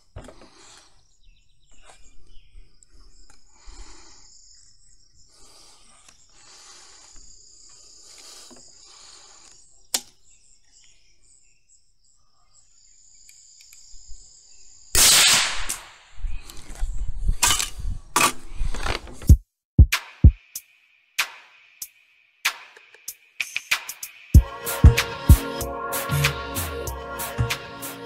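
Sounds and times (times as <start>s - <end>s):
crickets trilling: 0.0s - 15.0s
rifle shot with echo: 15.0s - 15.9s.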